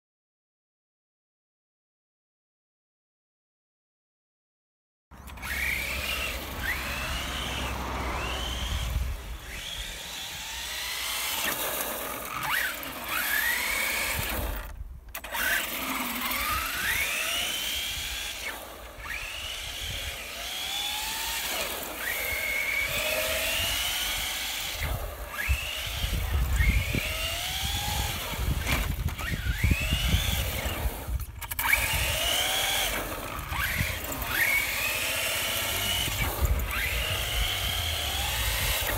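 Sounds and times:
rc truck motor whining: 0:05.2 - 0:38.9.

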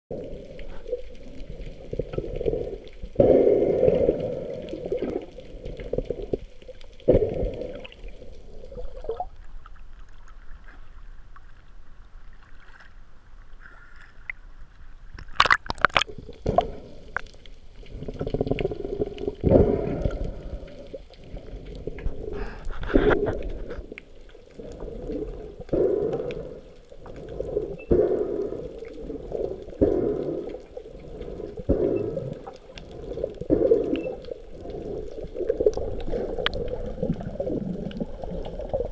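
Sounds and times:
muffled water sloshing and gurgling: 0:00.1 - 0:38.9
sharp water splashes: 0:15.2 - 0:16.7.

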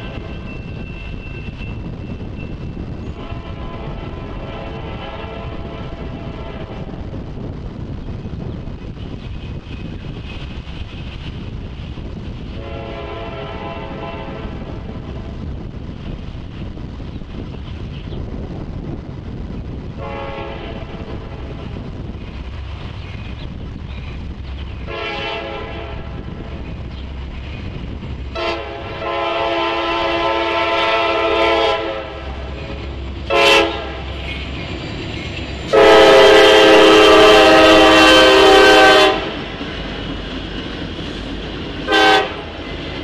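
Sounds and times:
train air horn blasts: 0:03.1 - 0:06.9, 0:12.6 - 0:14.7, 0:20.0 - 0:21.6, 0:24.9 - 0:26.3, 0:28.4 - 0:32.4, 0:33.3 - 0:34.1, 0:35.7 - 0:39.4, 0:41.9 - 0:42.5.

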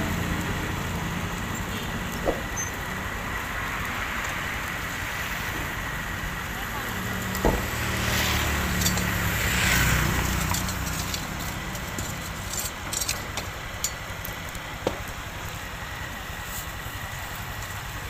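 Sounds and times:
street noise: 0:00.0 - 0:18.0
vehicle engine running: 0:00.0 - 0:18.0.

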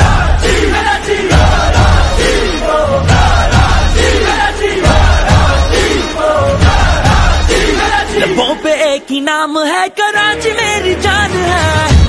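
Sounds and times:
crowd shouting: 0:00.0 - 0:08.6
music: 0:00.0 - 0:12.0.

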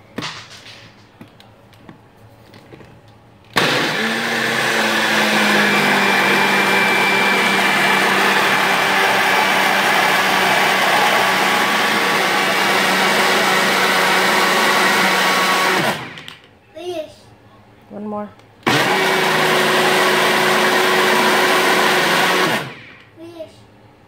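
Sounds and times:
blender running: 0:03.6 - 0:16.4, 0:18.6 - 0:23.0.

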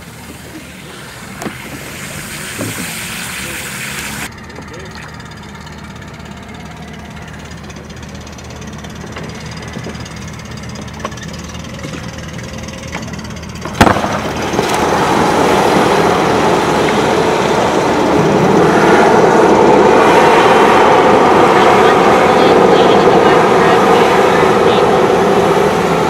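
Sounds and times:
inflation gas hissing: 0:00.0 - 0:04.3
outboard motor idling: 0:00.0 - 0:20.1, 0:20.7 - 0:26.0.

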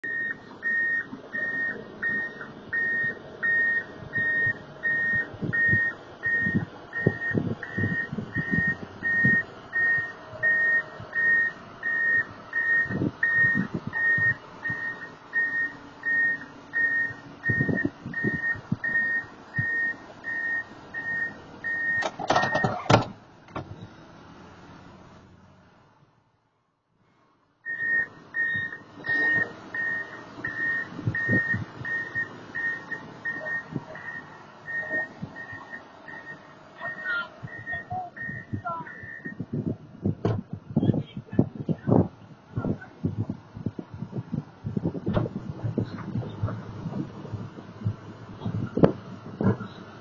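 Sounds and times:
reversing alarm beeping: 0:00.0 - 0:22.8, 0:27.6 - 0:39.4.

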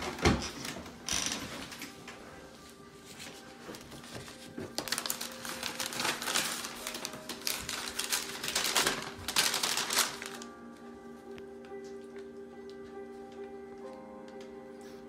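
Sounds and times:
paper rustling and crinkling: 0:02.7 - 0:10.6.

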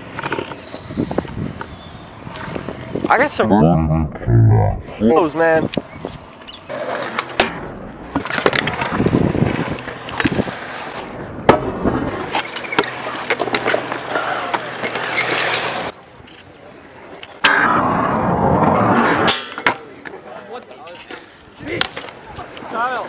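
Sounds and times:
small hard wheels rolling on concrete: 0:00.0 - 0:02.9, 0:08.1 - 0:11.2, 0:12.0 - 0:17.3.

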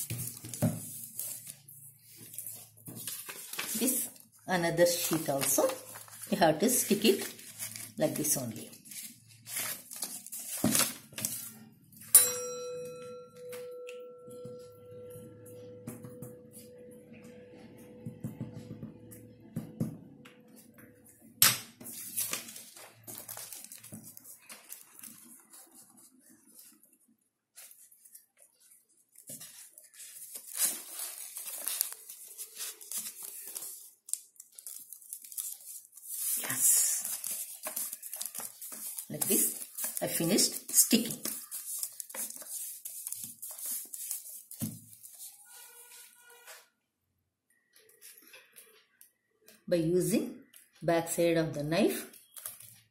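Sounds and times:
paper rustling and crinkling: 0:00.0 - 0:11.8, 0:21.8 - 0:46.7, 0:52.1 - 0:52.9
bell-like chime: 0:12.1 - 0:18.5.

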